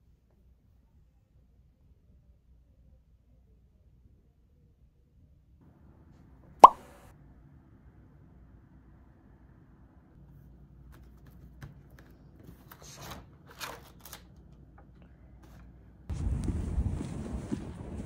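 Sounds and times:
paper pages rustling and turning: 0:10.8 - 0:15.8.

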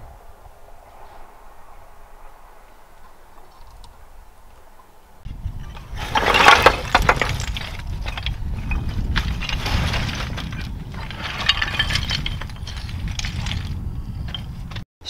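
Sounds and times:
footsteps on loose rock scree: 0:05.3 - 0:14.8
rock fragments clattering: 0:05.5 - 0:14.4.

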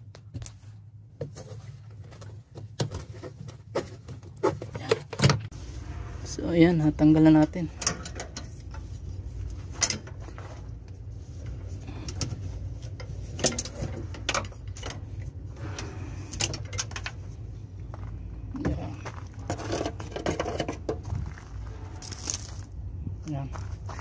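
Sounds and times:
metal cable clicking and rattling: 0:12.0 - 0:17.3.

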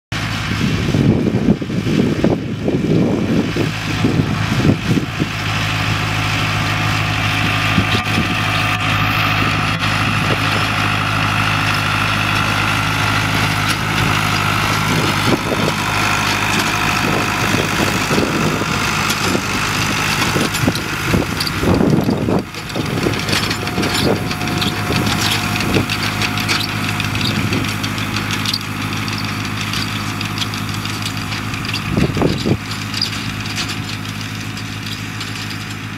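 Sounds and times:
tractor engine running: 0:00.1 - 0:35.9
wind buffeting microphone: 0:00.5 - 0:33.9.

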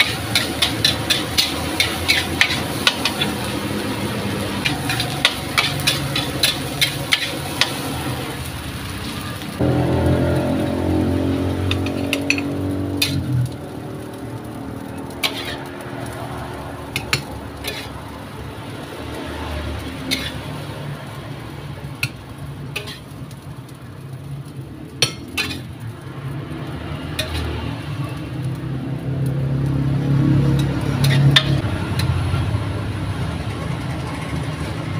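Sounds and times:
metal spatula scraping a wok: 0:00.0 - 0:13.5, 0:14.4 - 0:16.2, 0:16.9 - 0:18.2, 0:19.0 - 0:20.7, 0:22.0 - 0:23.4, 0:25.0 - 0:25.8, 0:27.0 - 0:27.8, 0:30.5 - 0:32.4.

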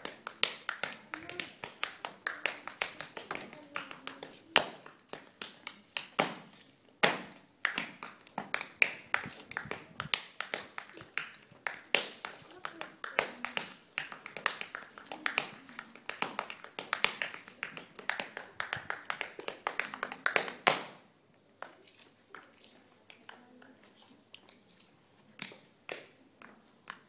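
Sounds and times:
tap shoes tapping on floor: 0:00.0 - 0:21.0.

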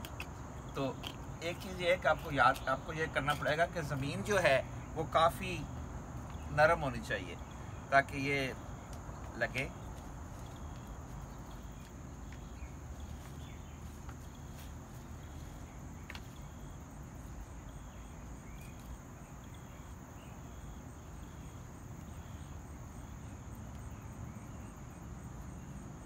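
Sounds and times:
crickets chirring: 0:00.0 - 0:26.0
insect chirping in pulses: 0:00.0 - 0:26.0.

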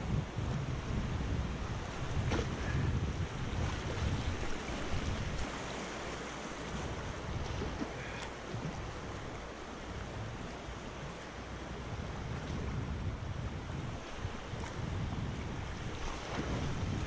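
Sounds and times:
wind buffeting microphone: 0:00.0 - 0:17.0
creek water rushing: 0:01.8 - 0:11.9.

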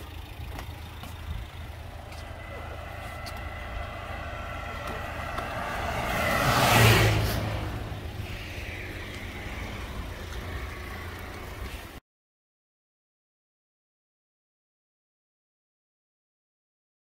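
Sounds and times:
steady low rumble: 0:00.0 - 0:12.0
car passing by: 0:01.7 - 0:12.0.

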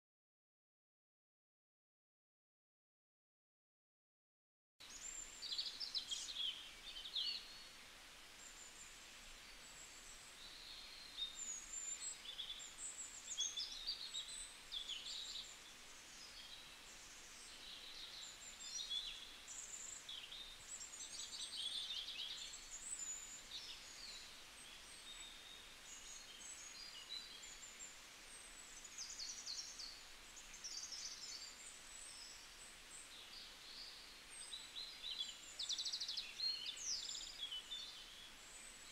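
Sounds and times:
outdoor background hiss: 0:04.8 - 0:38.9.

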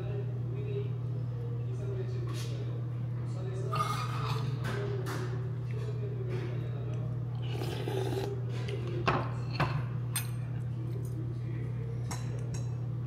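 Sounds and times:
utensils against a bowl: 0:03.7 - 0:06.6.

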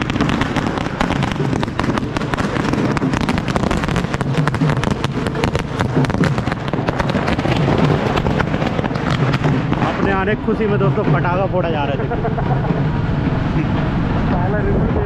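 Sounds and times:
firecrackers crackling: 0:00.0 - 0:15.0.

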